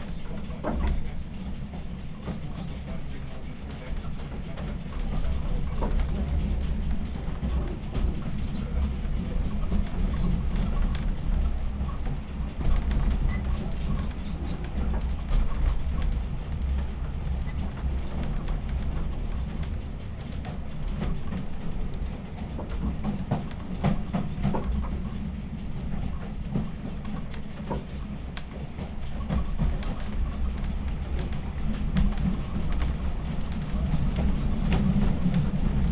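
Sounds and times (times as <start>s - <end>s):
train wheels rumbling: 0.0s - 35.9s
wheels clicking over rails: 0.0s - 35.9s.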